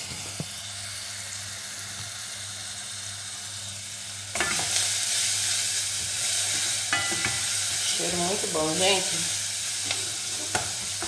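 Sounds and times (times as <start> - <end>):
onion sizzling in hot oil: 0.0 - 11.0.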